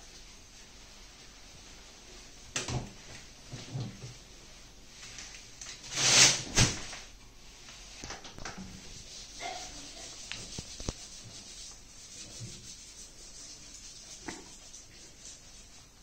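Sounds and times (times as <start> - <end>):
gown rustling in plastic liner: 3.0 - 8.0.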